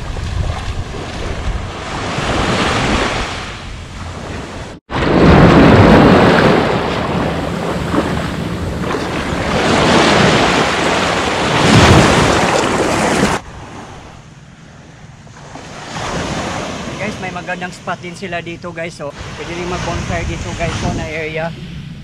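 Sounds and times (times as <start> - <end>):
wind buffeting microphone: 0.0 - 14.1, 19.2 - 22.0
waves washing over sand: 4.2 - 13.9.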